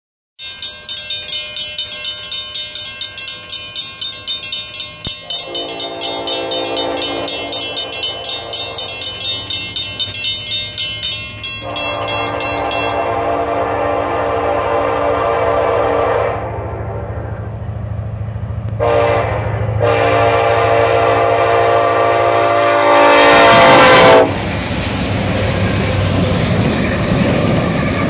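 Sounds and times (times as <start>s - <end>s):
fast high ringing: 0.4s - 13.3s
locomotive horn blasts: 5.2s - 9.1s, 11.6s - 17.2s, 18.8s - 24.4s.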